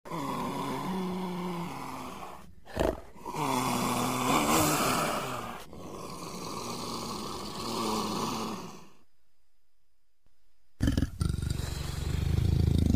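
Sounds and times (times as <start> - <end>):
leopard growling: 0.1 - 8.8.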